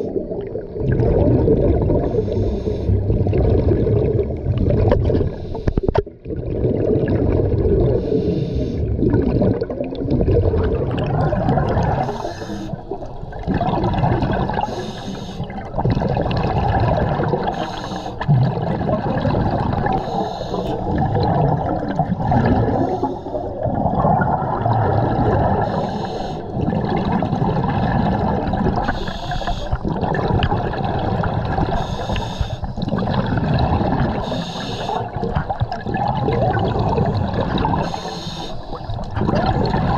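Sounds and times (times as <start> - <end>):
exhaled air bubbling: 0.0 - 39.9
regulator hissing inhale: 2.1 - 3.0, 5.3 - 5.9, 8.0 - 8.9, 12.0 - 12.9, 14.6 - 15.5, 17.5 - 18.2, 20.0 - 20.8, 22.8 - 23.6, 25.6 - 26.6, 28.8 - 29.8, 31.7 - 32.8, 34.2 - 35.2, 37.8 - 38.8.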